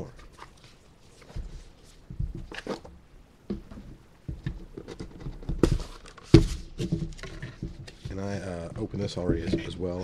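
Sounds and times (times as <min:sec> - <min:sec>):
cardboard box handled: 0:03.5 - 0:08.5.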